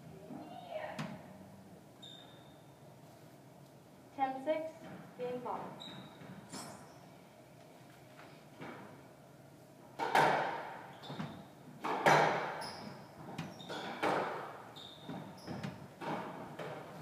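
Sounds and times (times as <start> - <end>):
shoes squeaking on wooden floor: 5.8 - 7.1, 10.9 - 11.5, 12.1 - 17.0.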